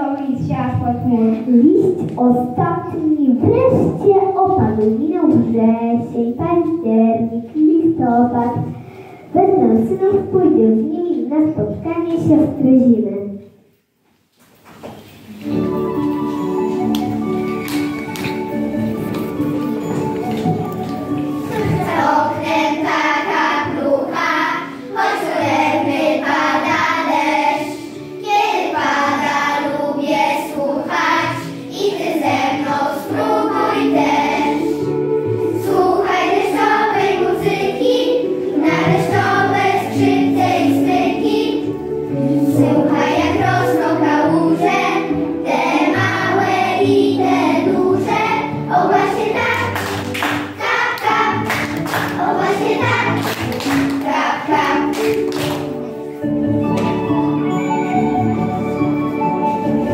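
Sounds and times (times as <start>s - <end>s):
instrumental backing music: 0.0s - 12.9s, 14.8s - 59.9s
children singing in unison: 21.4s - 55.7s.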